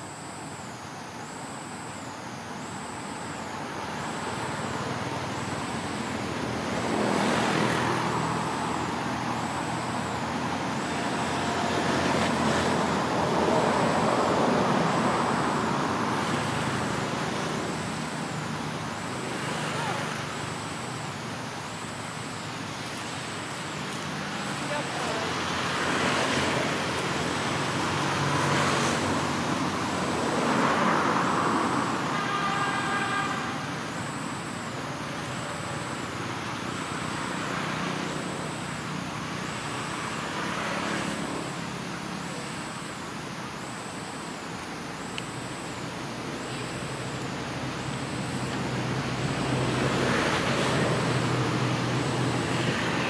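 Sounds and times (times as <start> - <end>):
road traffic passing: 0.0 - 53.0.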